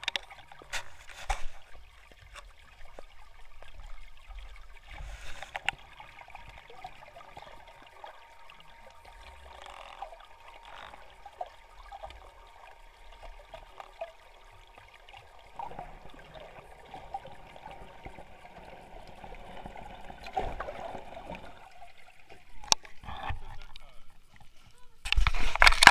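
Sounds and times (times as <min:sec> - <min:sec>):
small clicks and knocks: 0:00.0 - 0:01.6, 0:05.2 - 0:06.7, 0:09.3 - 0:12.2
faint underwater water noise: 0:00.0 - 0:25.9.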